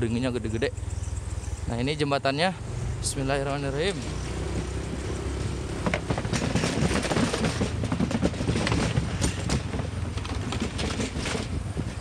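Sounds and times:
motorcycle engine running: 0.0s - 12.0s
bridge deck rattling: 3.4s - 12.0s.

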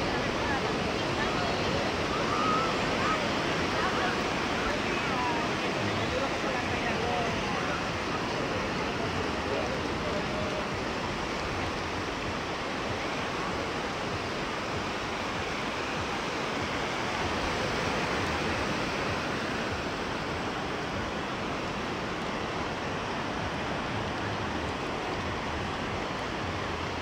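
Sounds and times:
surf washing onto beach: 0.0s - 27.0s.

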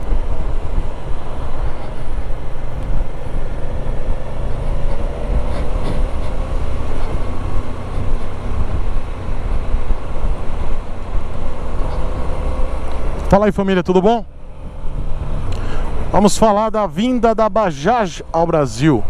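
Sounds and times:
wind rush on microphone: 0.0s - 13.3s.

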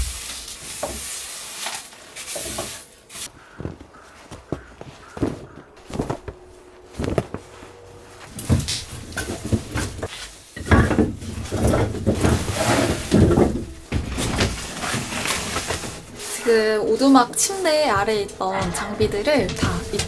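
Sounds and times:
canvas bag rustling: 3.4s - 10.6s, 11.2s - 18.1s
firewood knocking together: 8.4s - 15.8s.

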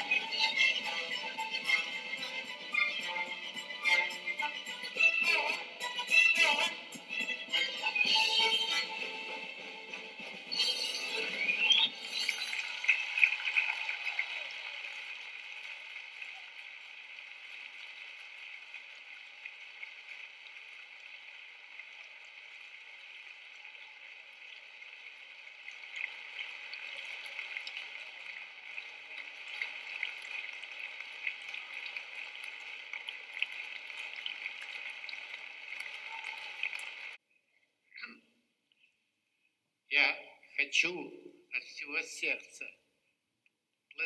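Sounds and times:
audience applauding: 11.2s - 24.4s, 26.1s - 37.2s.

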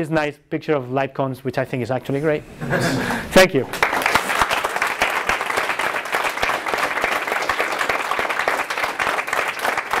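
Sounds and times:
audience applauding: 3.7s - 10.0s.

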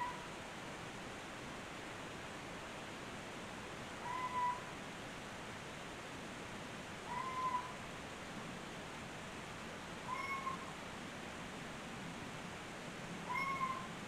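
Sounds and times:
recording hiss: 0.0s - 14.0s
short animal call: 4.0s - 4.6s, 7.1s - 7.8s, 10.1s - 10.7s, 13.3s - 13.9s.

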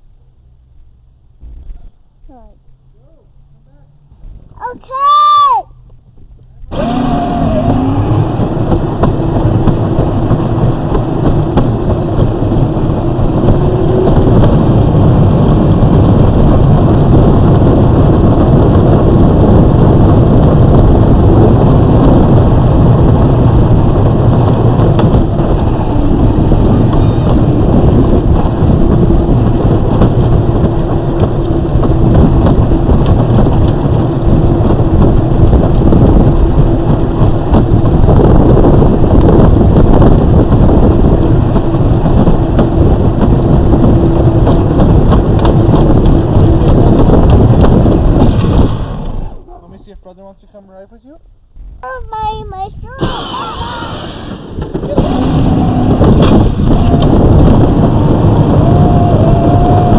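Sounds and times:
electric motor hum: 6.6s - 15.4s.

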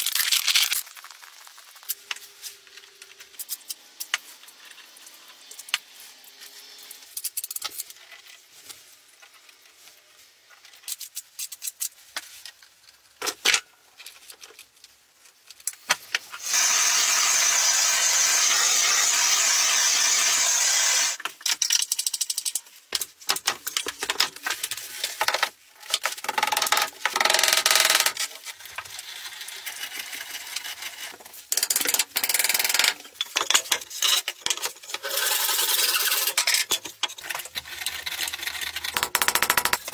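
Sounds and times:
gas torch hissing: 16.4s - 21.2s
stones and tools clicking: 30.1s - 39.9s.

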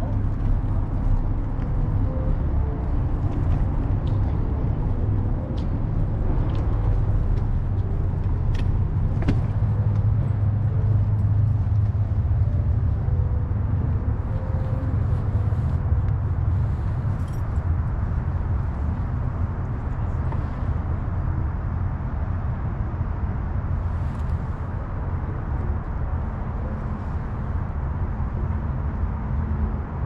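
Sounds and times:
road and wind rumble: 0.0s - 30.0s
traffic: 0.0s - 30.0s.

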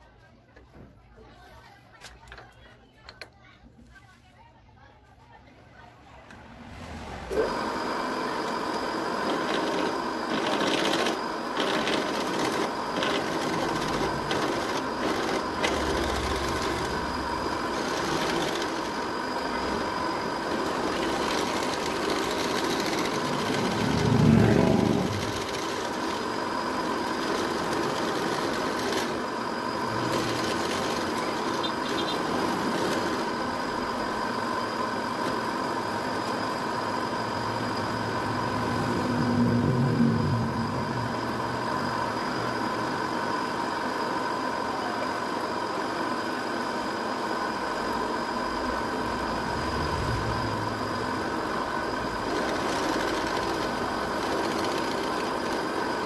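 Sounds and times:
low rumble: 6.2s - 7.8s, 23.3s - 25.4s, 37.2s - 42.8s, 48.4s - 52.3s
drill press motor whine: 7.3s - 56.0s.

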